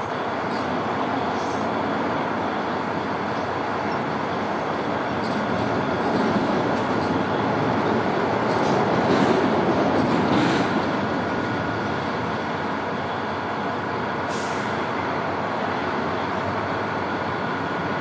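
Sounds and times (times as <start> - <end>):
passing vehicles rumbling: 0.0 - 18.0
short hiss: 14.3 - 14.8.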